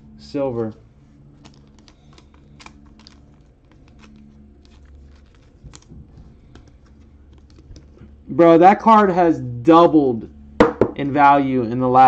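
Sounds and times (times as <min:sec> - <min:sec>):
low steady hum: 0:00.0 - 0:12.0
foil cards flipped and shuffled: 0:01.3 - 0:08.1.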